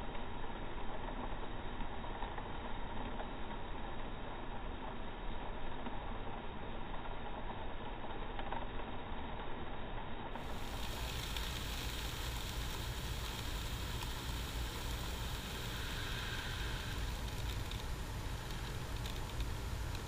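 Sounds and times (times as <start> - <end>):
box fan rushing: 10.4 - 20.0
grain pouring into plastic tub: 10.4 - 20.0.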